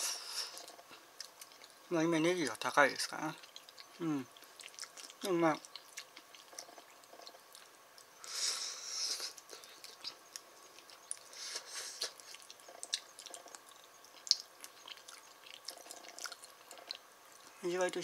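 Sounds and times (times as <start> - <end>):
breathy hiss: 0.0 - 1.1, 8.2 - 10.0, 11.2 - 12.4
eating mouth sounds: 3.3 - 17.5.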